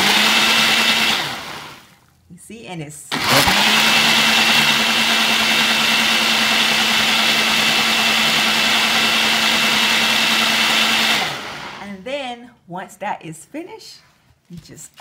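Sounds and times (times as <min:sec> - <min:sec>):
blender motor whining: 0:00.0 - 0:01.9, 0:03.1 - 0:11.8.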